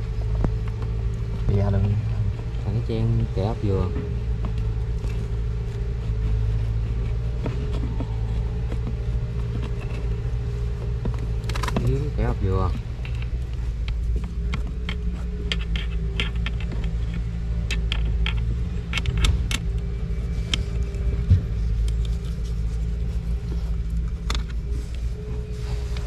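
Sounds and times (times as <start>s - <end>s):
low motor-like hum: 0.0s - 26.0s
sharp clicks and knocks: 7.0s - 22.1s.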